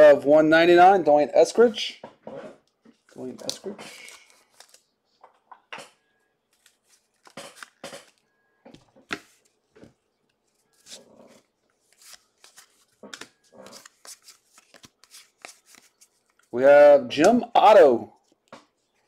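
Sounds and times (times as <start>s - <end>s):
cards rustling and slapping: 2.9s - 5.4s, 6.5s - 16.5s.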